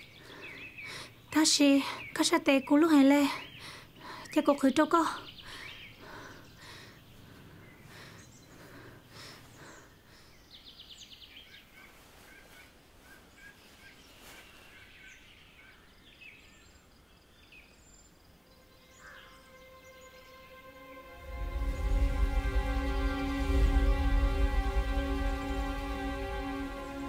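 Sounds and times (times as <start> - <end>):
birds chirping: 0.0 - 27.0
soft music: 18.4 - 27.0.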